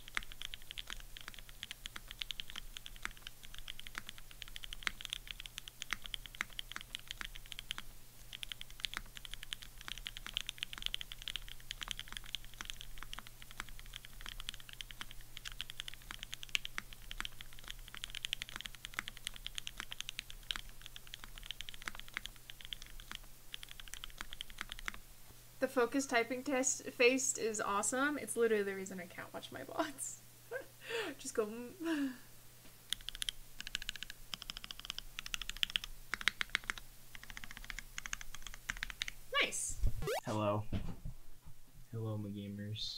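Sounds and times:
mechanical keyboard typing: 0.0s - 25.0s, 32.9s - 39.2s.

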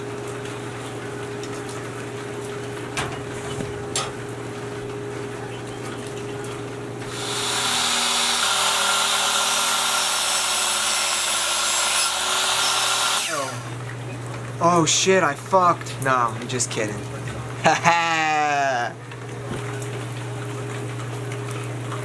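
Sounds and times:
steady background hum: 0.0s - 22.0s
electric miter saw cutting wood: 7.1s - 13.8s.

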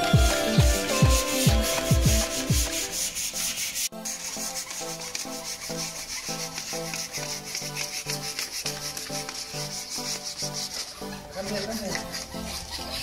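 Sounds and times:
music with thumping beat: 0.0s - 3.2s
hand sanding wood: 0.0s - 13.0s.

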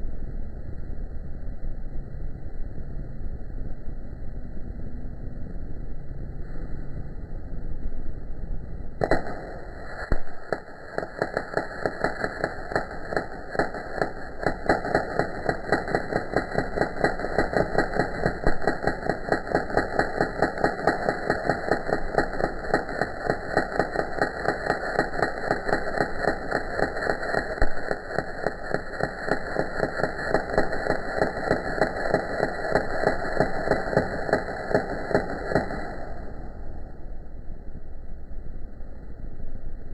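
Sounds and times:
sharp crack: 9.0s - 36.9s
welding arc crackling: 9.0s - 36.9s.

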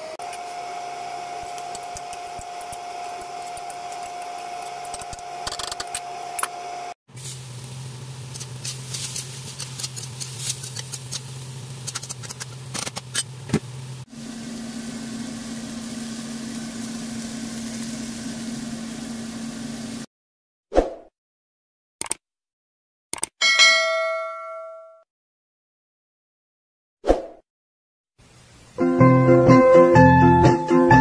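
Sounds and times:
stir-fry crackling and popping: 0.2s - 6.1s, 7.1s - 20.1s.

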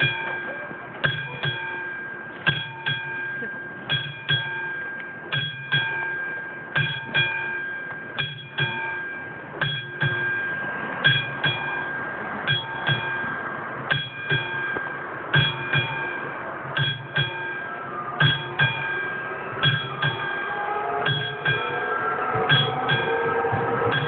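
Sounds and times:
level crossing warning bell: 0.0s - 24.0s.

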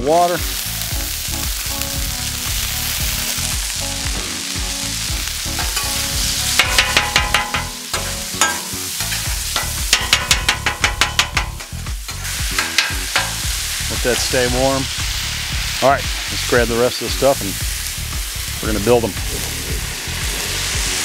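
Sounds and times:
meat sizzling on griddle: 0.0s - 21.0s
metal spatula chopping and scraping: 5.6s - 13.5s
water flashing to steam: 11.7s - 21.0s.

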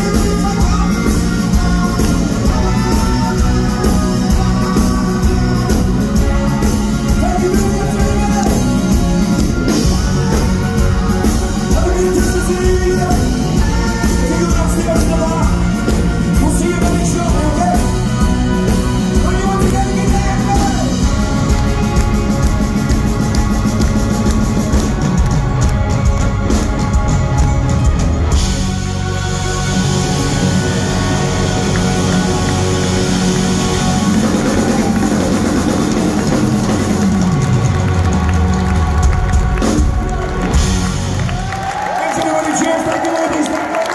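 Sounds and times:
person singing: 0.0s - 27.5s
live rock band playing: 0.0s - 43.9s.

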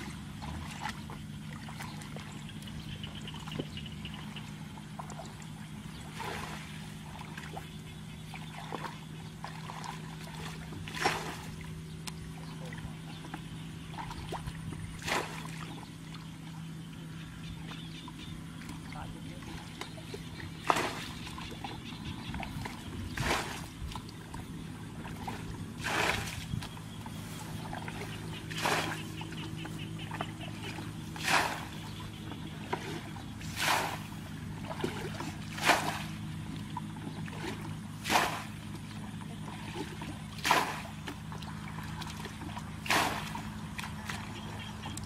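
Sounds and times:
steady low hum: 0.0s - 45.0s
water sloshing: 0.0s - 45.0s
water splashing from bucket: 9.6s - 11.6s, 20.6s - 21.2s, 22.6s - 24.0s, 25.0s - 26.6s, 27.7s - 29.1s, 30.1s - 31.9s, 32.6s - 36.2s, 37.2s - 38.8s, 39.5s - 44.4s.

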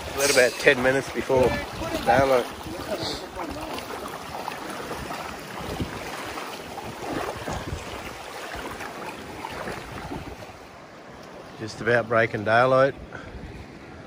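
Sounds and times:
wind on microphone: 0.0s - 10.6s
water splashing around wading feet: 0.0s - 11.6s.

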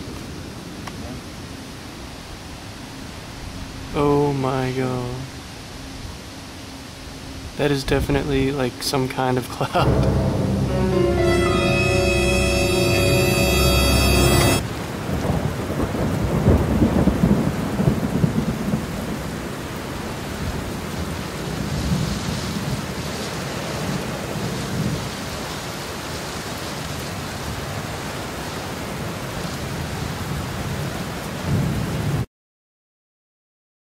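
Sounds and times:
steady rain: 0.0s - 32.3s
thunder rumbling: 9.8s - 19.2s.

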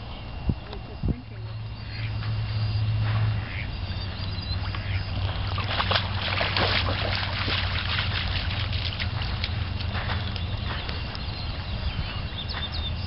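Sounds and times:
steady low hum: 0.0s - 13.0s
dog splashing through water: 4.8s - 10.8s.

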